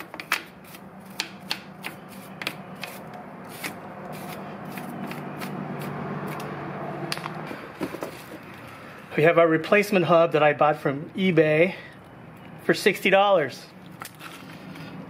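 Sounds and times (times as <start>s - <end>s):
wire brush scrubbing metal: 2.1s - 6.5s.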